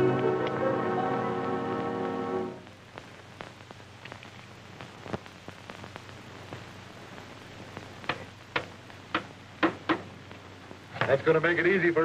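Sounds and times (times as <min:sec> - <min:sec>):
film soundtrack hiss and crackle: 0:00.0 - 0:12.0
faint pops: 0:02.9 - 0:11.2
sharp knocks: 0:08.1 - 0:10.1.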